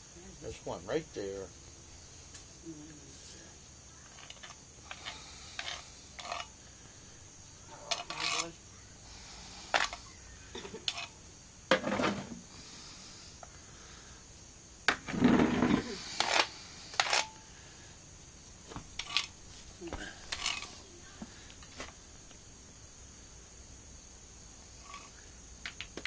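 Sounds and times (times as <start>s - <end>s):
rubbing and scuffing: 18.6s - 22.4s.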